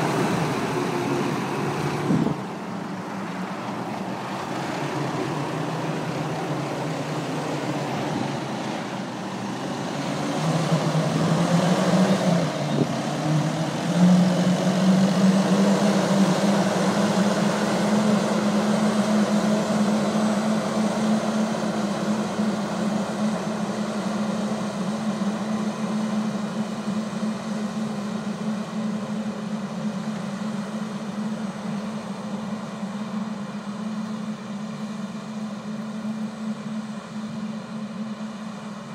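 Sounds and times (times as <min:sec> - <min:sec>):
rushing noise: 0:00.0 - 0:35.4
tractor engine running: 0:00.0 - 0:38.9.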